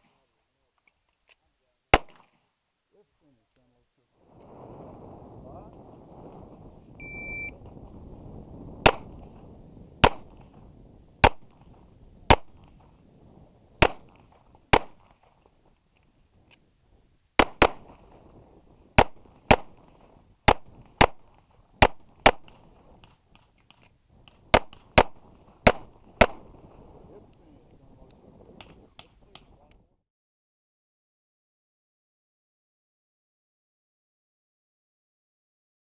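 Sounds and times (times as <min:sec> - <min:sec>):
pistol shots: 0:01.9 - 0:02.4, 0:08.8 - 0:09.2, 0:10.0 - 0:10.5, 0:11.2 - 0:11.6, 0:12.3 - 0:12.7, 0:13.8 - 0:15.3, 0:17.4 - 0:18.0, 0:19.0 - 0:19.9, 0:20.5 - 0:23.1, 0:23.7 - 0:26.6
shot timer beep: 0:07.0 - 0:07.6.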